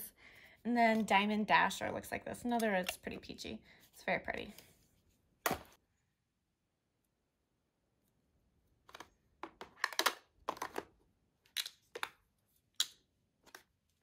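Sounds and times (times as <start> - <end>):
plastic compacts clicking: 8.8 - 12.2.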